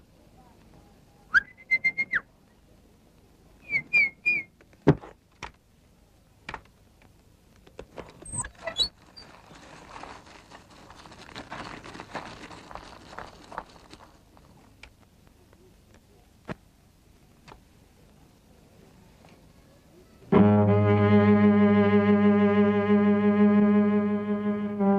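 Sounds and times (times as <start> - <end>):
whistled chirps: 1.3 - 2.3, 3.6 - 4.5
soft rustling hiss: 4.6 - 20.3
rising squeaks: 8.2 - 9.6.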